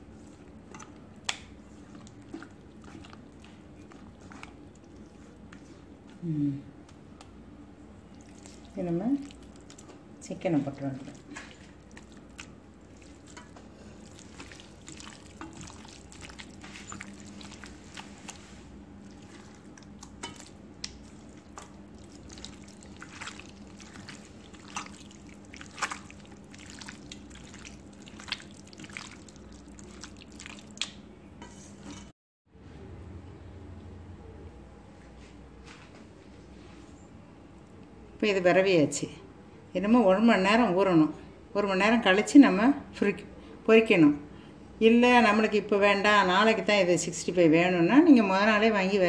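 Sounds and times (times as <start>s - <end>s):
wet batter squelching by hand: 0.0s - 6.3s, 8.1s - 31.0s
steady low hum: 0.0s - 41.7s.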